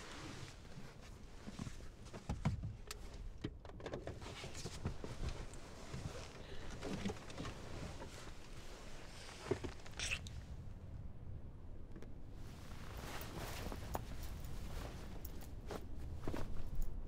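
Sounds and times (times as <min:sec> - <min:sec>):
clothing rustling: 0:04.2 - 0:10.1, 0:12.3 - 0:17.0.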